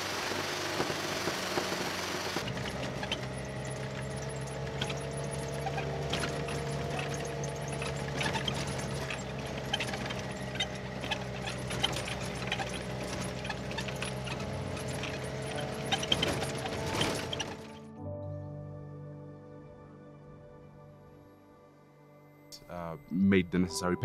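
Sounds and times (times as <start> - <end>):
vehicle body rattling: 0.0 - 17.9
vehicle engine drone: 0.0 - 18.0.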